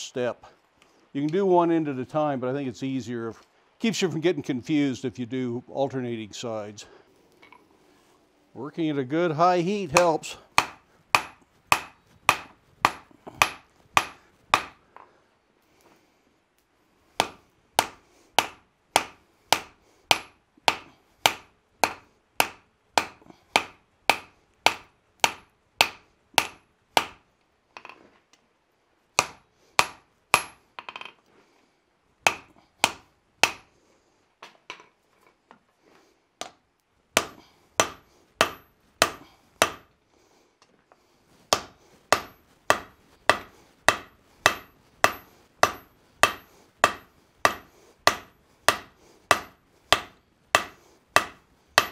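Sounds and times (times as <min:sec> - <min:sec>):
hammer blows on anvil: 0:41.5 - 0:51.9
anvil ringing: 0:42.2 - 0:51.9.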